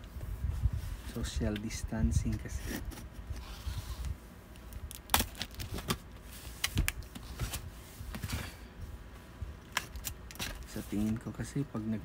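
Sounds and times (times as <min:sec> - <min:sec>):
cardboard packaging being opened: 0:02.3 - 0:08.3, 0:09.6 - 0:11.2.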